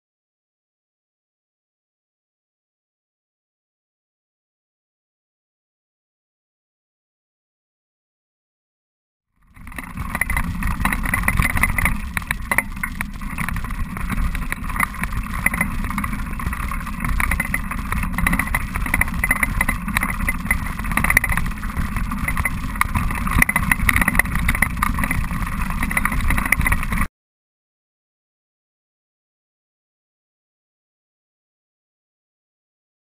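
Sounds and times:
bicycle rolling on dirt track: 9.4 - 27.1
small clicks: 9.4 - 27.1.

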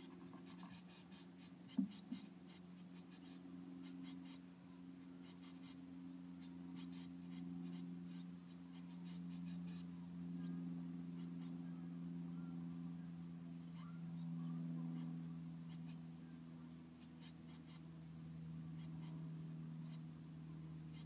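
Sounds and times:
chicks peeping: 0.0 - 5.8, 6.4 - 9.8, 13.6 - 17.9
steady low hum: 0.0 - 21.0.

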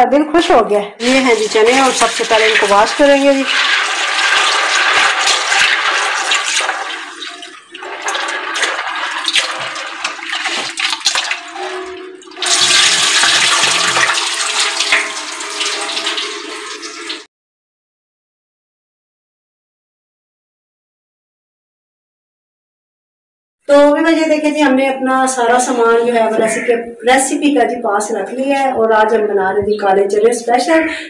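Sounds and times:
tap water splashing into bowl: 1.0 - 17.2.

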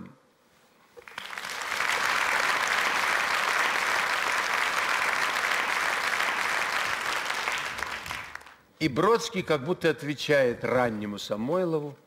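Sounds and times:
audience applauding: 1.0 - 8.6.

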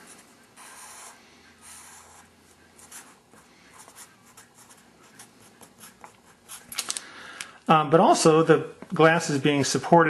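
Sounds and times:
marker drawing on paper: 0.0 - 6.7.

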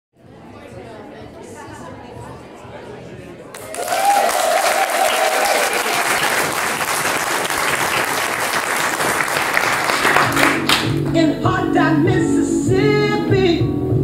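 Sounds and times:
audience applauding: 3.5 - 11.2.

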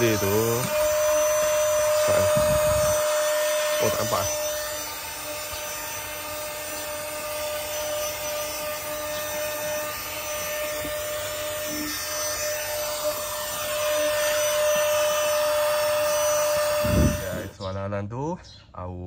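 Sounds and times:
vacuum sucking up sand: 0.0 - 4.4, 16.2 - 17.7
handheld vacuum motor whine: 0.0 - 17.7.

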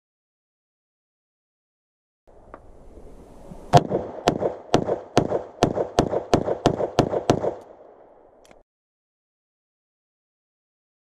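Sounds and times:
pistol shots with echo: 3.7 - 8.1.

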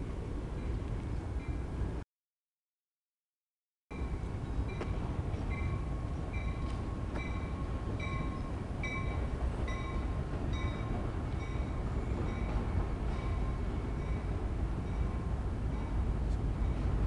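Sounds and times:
freight train rumbling past: 3.9 - 17.0.

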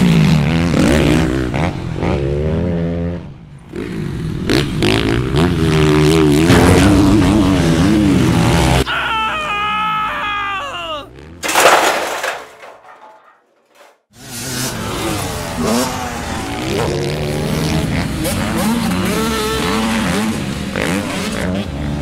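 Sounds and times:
harsh crash burst: 6.4 - 8.8.

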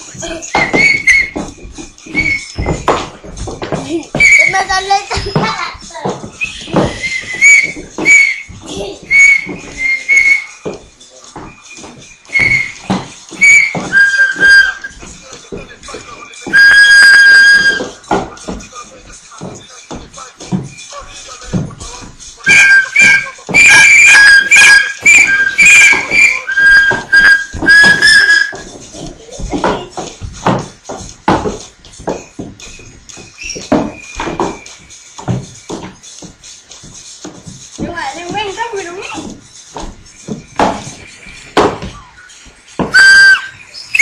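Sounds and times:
dance music: 0.0 - 33.7, 34.6 - 44.0
high whistle blasts: 0.6 - 3.0, 4.2 - 4.6, 6.4 - 8.5, 9.1 - 10.7, 12.3 - 15.0, 16.5 - 18.1, 22.4 - 28.7, 42.0 - 44.0.

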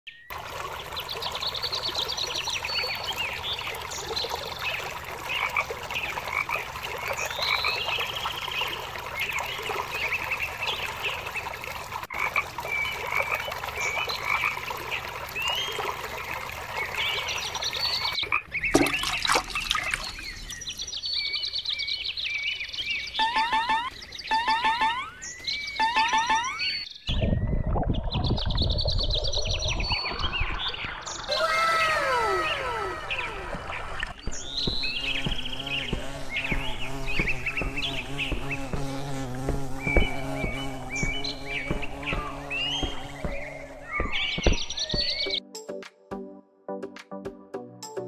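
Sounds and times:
frogs croaking: 4.8 - 9.0, 11.6 - 15.2.

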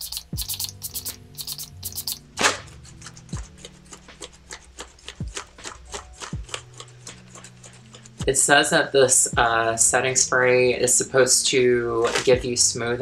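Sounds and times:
light regular ticking: 0.0 - 2.2
spray hisses: 0.0 - 2.2
background music: 0.0 - 13.0.

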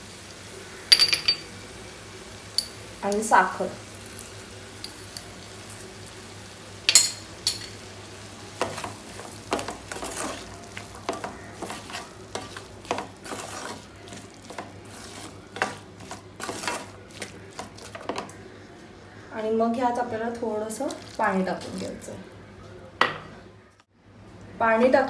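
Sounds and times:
food sizzling in oil: 0.0 - 18.8
spatula scraping frying pan: 8.6 - 18.4.

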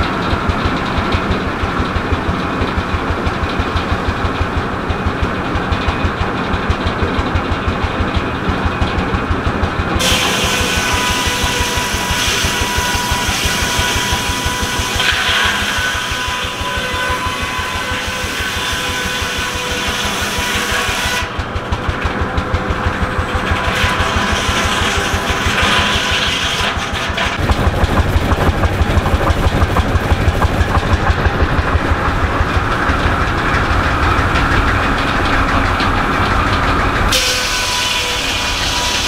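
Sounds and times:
tractor engine exhaust beat: 0.0 - 15.0, 21.0 - 26.0, 27.0 - 37.6.

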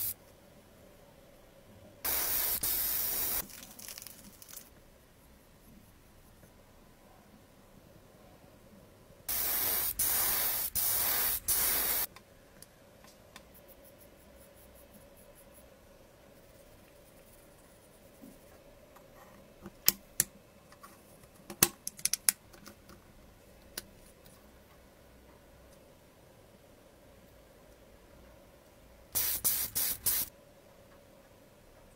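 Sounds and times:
paint spray hissing: 2.1 - 3.6, 9.3 - 12.1, 29.2 - 30.3.

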